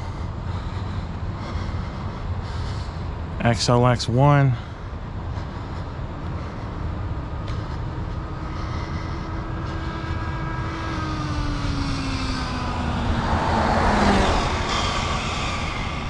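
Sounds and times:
wind noise: 0:04.8 - 0:16.0.

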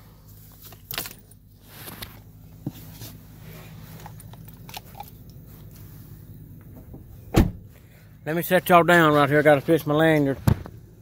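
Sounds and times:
low steady hum: 0:00.0 - 0:11.0.

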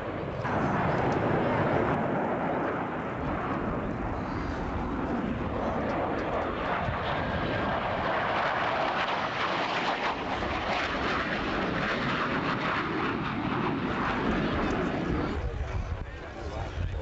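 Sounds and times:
jet engine roar on low pass: 0:00.0 - 0:17.0.

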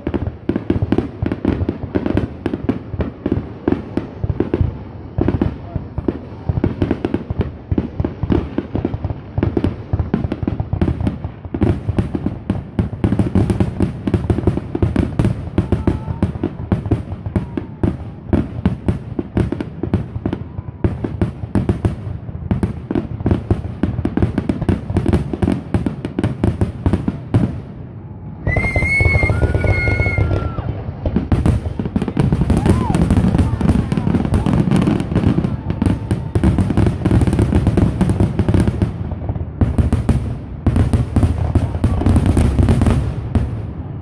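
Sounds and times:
fireworks bursting and crackling: 0:00.0 - 0:44.0.

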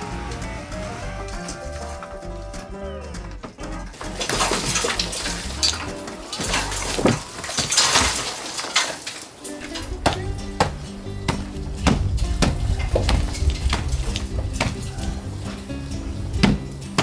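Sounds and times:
background music: 0:00.0 - 0:17.0
boards pried and scraped with bar: 0:04.0 - 0:09.2.

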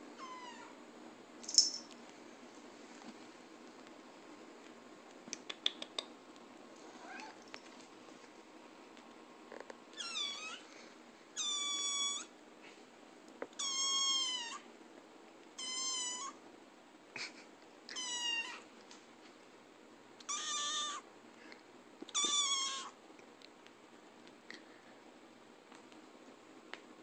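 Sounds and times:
kitten meowing: 0:10.0 - 0:10.6, 0:11.4 - 0:12.3, 0:13.6 - 0:14.6, 0:15.6 - 0:16.4, 0:20.3 - 0:21.0, 0:22.1 - 0:22.9.

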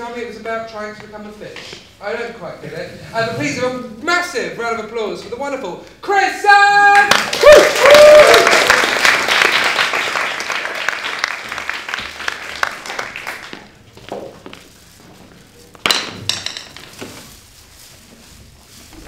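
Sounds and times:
audience applauding: 0:07.0 - 0:13.8.

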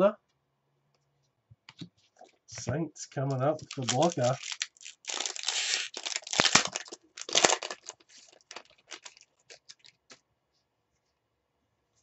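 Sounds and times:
foil wrapper crinkling: 0:03.5 - 0:10.2
foil wrapper tearing: 0:03.6 - 0:10.0.

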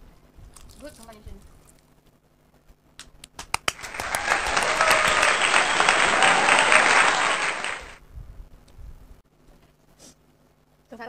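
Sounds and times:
crowd applause: 0:03.7 - 0:08.0.

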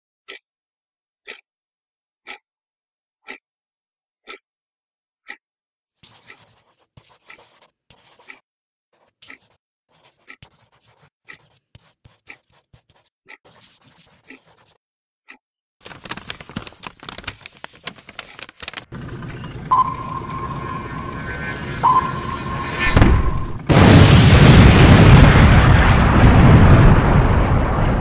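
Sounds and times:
clock ticking: 0:01.2 - 0:01.4, 0:02.2 - 0:02.4, 0:03.2 - 0:03.4, 0:04.2 - 0:04.4, 0:05.2 - 0:05.4, 0:08.1 - 0:08.4, 0:09.1 - 0:09.6, 0:10.2 - 0:12.5, 0:14.2 - 0:14.6, 0:17.2 - 0:23.7
pen scratching on paper: 0:06.0 - 0:08.4, 0:09.0 - 0:14.8
paper crackling being folded: 0:15.8 - 0:19.7
steady sound with held tone: 0:19.0 - 0:23.7.

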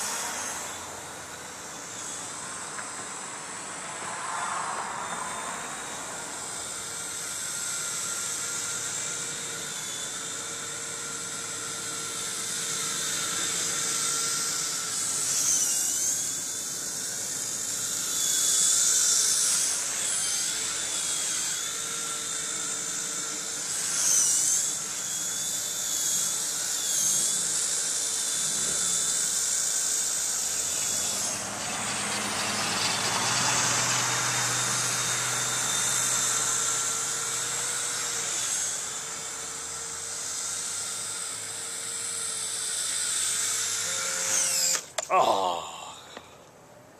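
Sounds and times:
toy electric motor whining: 0:00.0 - 0:46.6
car driving past: 0:03.9 - 0:06.4.

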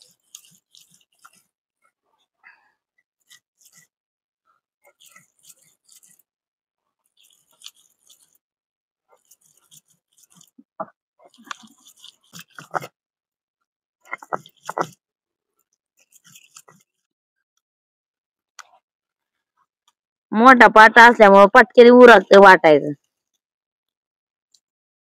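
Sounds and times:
stone roller grinding on stone slab: 0:11.4 - 0:12.9.

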